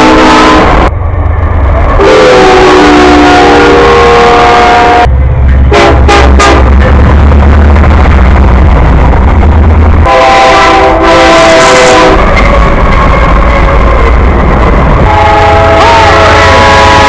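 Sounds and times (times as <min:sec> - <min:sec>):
multi-tone locomotive horn chord: 0:00.0 - 0:00.9, 0:02.0 - 0:05.1, 0:05.7 - 0:06.8, 0:10.0 - 0:14.1, 0:15.0 - 0:17.0
diesel locomotive engine rumble: 0:00.0 - 0:17.0
short horn blasts: 0:02.0 - 0:05.1, 0:05.7 - 0:06.8, 0:10.0 - 0:12.5, 0:15.1 - 0:17.0.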